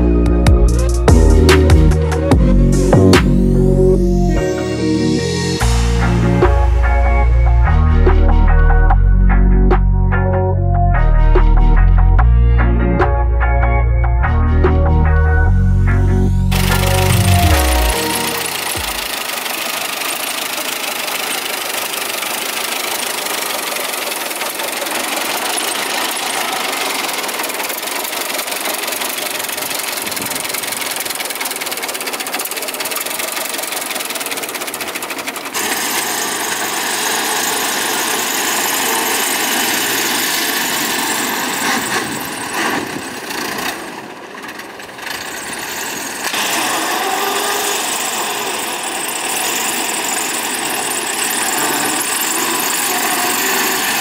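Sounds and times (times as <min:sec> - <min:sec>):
car engine idling: 0:00.0 - 0:10.8, 0:14.8 - 0:46.3
car driving: 0:15.2 - 0:19.2.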